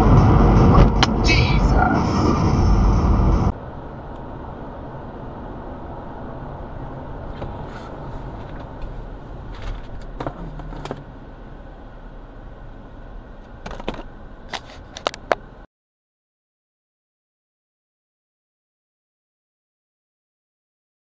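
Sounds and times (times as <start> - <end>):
car road noise: 0.0 - 15.7
tyre hum inside car: 6.8 - 11.3.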